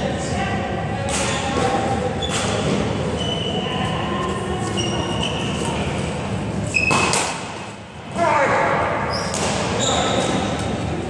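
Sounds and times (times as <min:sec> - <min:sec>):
trainers squeaking on floor: 0:03.1 - 0:03.7, 0:04.7 - 0:05.8, 0:06.7 - 0:07.2, 0:09.1 - 0:10.6.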